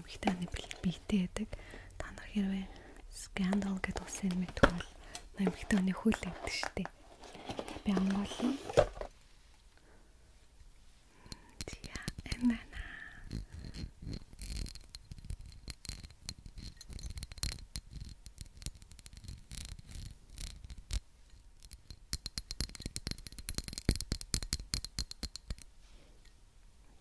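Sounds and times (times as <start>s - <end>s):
fingernails tapping on glass bottle: 21.7s - 25.6s.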